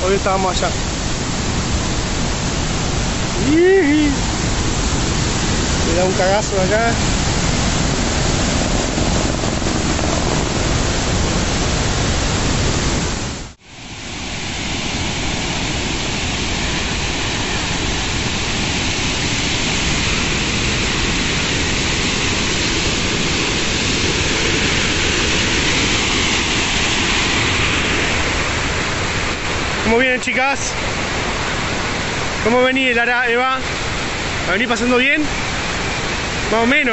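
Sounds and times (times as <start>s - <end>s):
waterfall rushing water: 0.0s - 36.9s.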